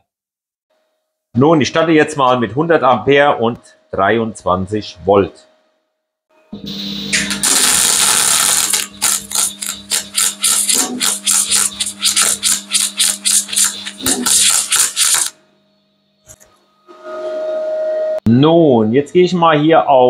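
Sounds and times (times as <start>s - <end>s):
welding arc crackling: 6.7s - 15.4s.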